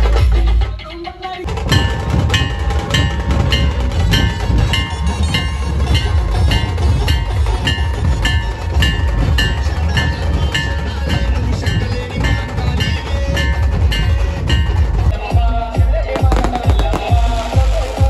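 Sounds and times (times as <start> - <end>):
metal cylinder clanging: 1.4 - 15.3
rattling drum rolls: 1.4 - 15.5
deep drums beating: 1.4 - 18.0.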